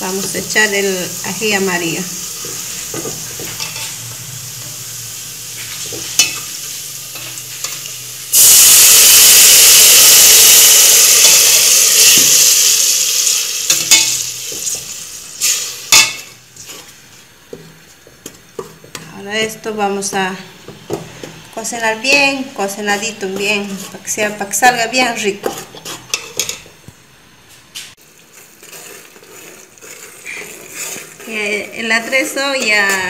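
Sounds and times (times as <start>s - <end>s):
loud sizzle: 0.0s - 17.3s
oil frying garlic: 0.0s - 19.2s, 28.0s - 33.0s.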